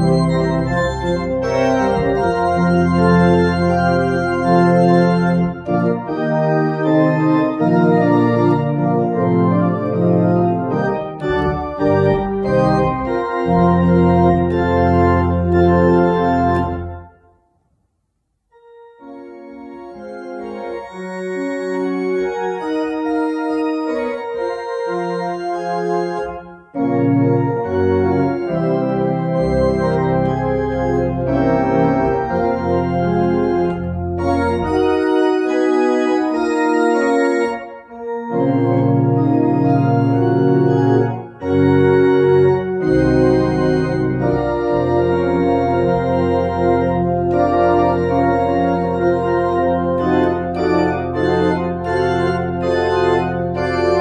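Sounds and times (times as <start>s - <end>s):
deep organ pedal bass: 0.0s - 17.2s, 19.0s - 54.0s
church organ chords: 0.0s - 17.5s, 18.6s - 54.0s.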